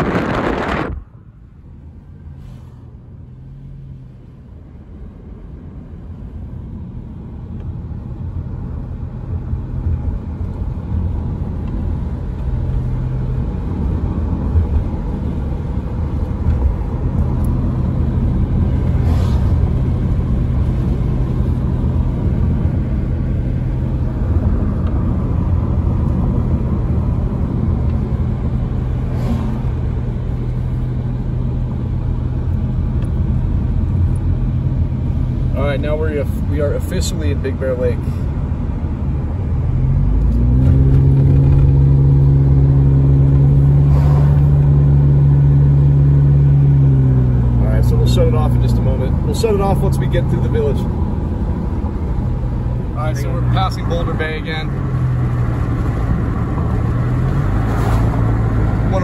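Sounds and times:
car road and engine rumble: 0:00.0 - 0:59.0
brief swishes: 0:19.0 - 0:19.6, 0:29.0 - 0:29.8, 0:43.8 - 0:44.5.

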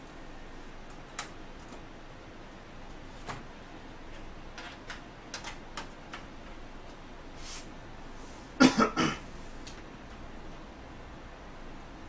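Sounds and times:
light clicks and taps at computer: 0:00.8 - 0:01.9, 0:04.6 - 0:07.0
person coughing: 0:08.6 - 0:09.3.

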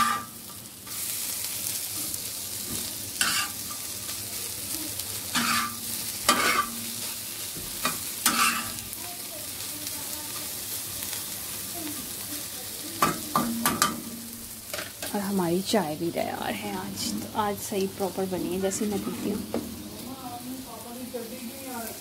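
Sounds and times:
metal spatula scraping: 0:00.0 - 0:01.0, 0:03.2 - 0:03.9, 0:05.4 - 0:07.2, 0:07.8 - 0:08.8, 0:18.6 - 0:20.4
egg sizzling on a griddle: 0:00.0 - 0:22.0.

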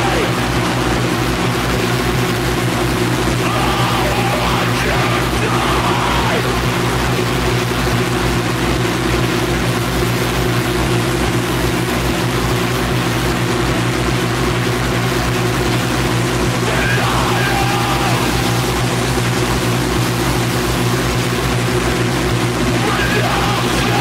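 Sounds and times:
low drone: 0:00.0 - 0:07.4, 0:15.8 - 0:24.0
harsh distorted noise: 0:00.0 - 0:08.0, 0:14.1 - 0:24.0
throbbing bass pulse: 0:16.6 - 0:20.7.

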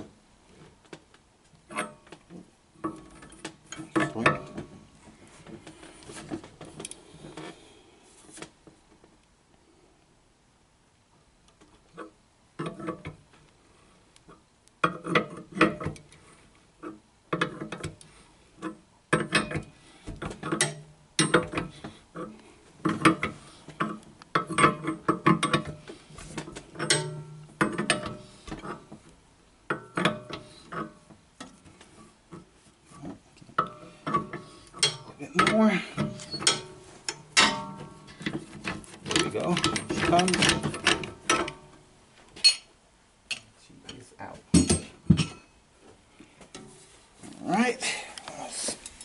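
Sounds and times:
wrench and rod rattling: 0:33.6 - 0:41.6.

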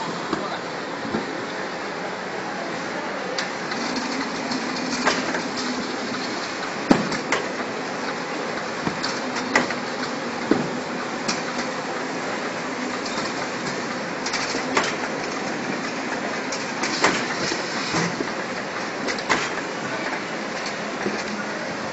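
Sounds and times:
conveyor line running: 0:00.0 - 0:21.9.

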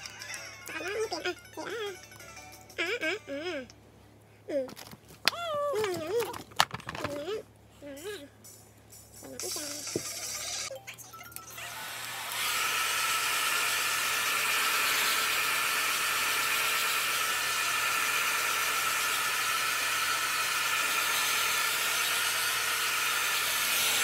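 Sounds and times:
hair dryer blowing: 0:11.7 - 0:24.0.

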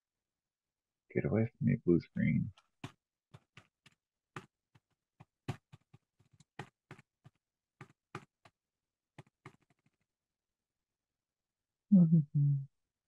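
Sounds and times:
keyboard typing: 0:09.2 - 0:10.0.

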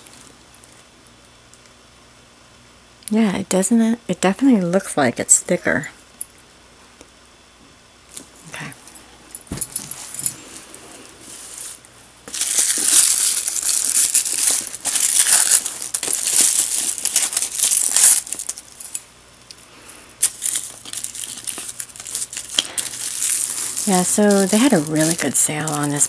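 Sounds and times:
tissue paper crinkling: 0:09.8 - 0:19.0, 0:20.2 - 0:26.0.

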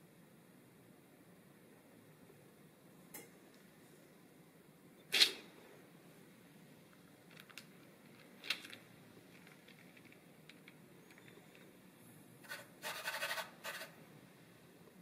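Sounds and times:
hands rubbing on paper: 0:12.4 - 0:13.9.

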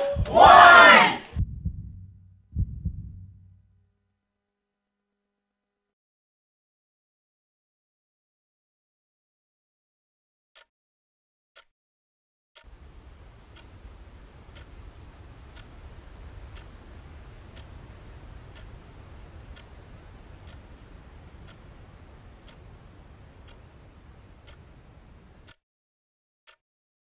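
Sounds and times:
clock ticking: 0:00.0 - 0:03.4, 0:12.6 - 0:25.6
low rumbling noise: 0:00.0 - 0:03.8, 0:12.7 - 0:25.5.

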